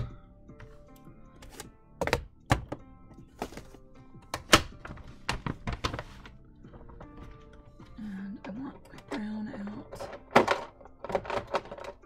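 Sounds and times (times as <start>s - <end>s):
crafting supplies knocking and clicking: 9.9s - 12.0s.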